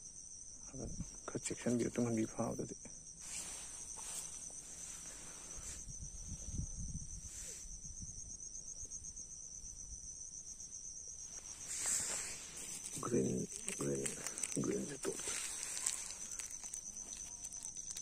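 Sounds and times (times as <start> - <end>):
insects chirring: 0.0 - 18.0
handling noise and rustling: 11.3 - 18.0.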